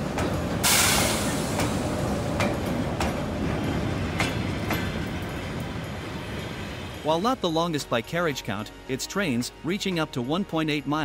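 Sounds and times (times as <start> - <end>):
train carriages rumbling: 0.0 - 10.4
wheels clicking over rail joints: 1.5 - 7.0.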